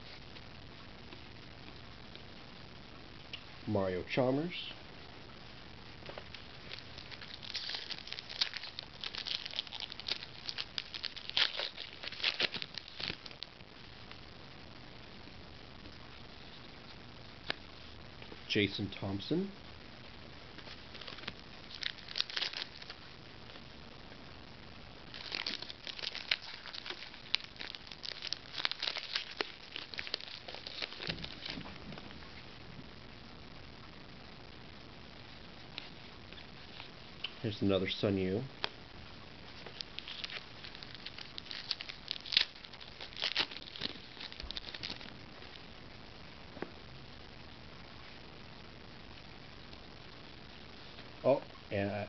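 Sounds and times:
foil wrapper crinkling and tearing: 0:06.1 - 0:13.5, 0:20.6 - 0:23.1, 0:25.1 - 0:31.9, 0:39.5 - 0:45.7.

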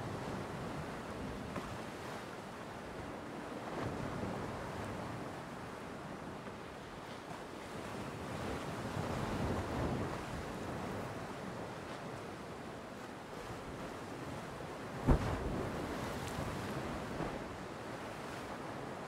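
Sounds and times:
wind on microphone: 0:13.4 - 0:19.0
ocean surf breaking on beach: 0:14.7 - 0:19.0
sharp low thump: 0:15.0 - 0:15.6.

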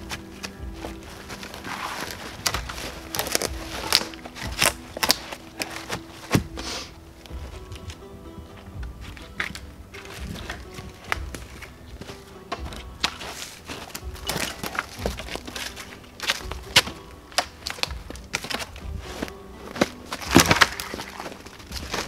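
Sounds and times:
dry sticks cracking: 0:00.0 - 0:22.0
wooden poles knocking: 0:00.0 - 0:22.0.

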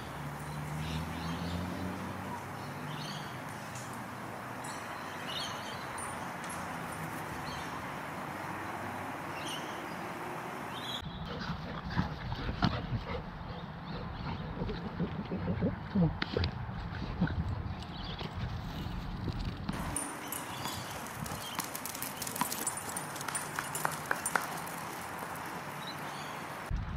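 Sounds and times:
birds chirping: 0:00.0 - 0:11.3, 0:19.7 - 0:26.7.

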